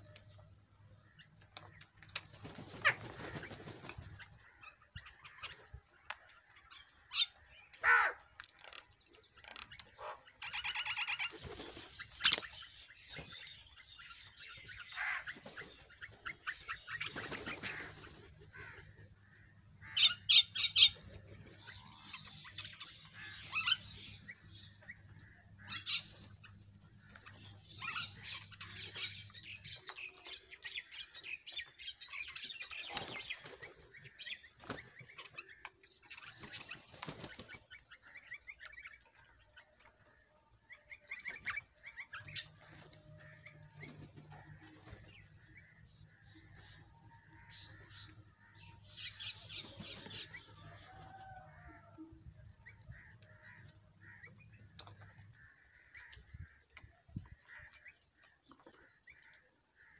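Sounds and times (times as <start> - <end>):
wings flapping: 1.4 - 6.2, 9.7 - 13.5, 14.6 - 19.0, 32.6 - 40.2
crows cawing: 7.2 - 8.8, 14.8 - 15.3, 17.5 - 20.9, 52.9 - 59.9.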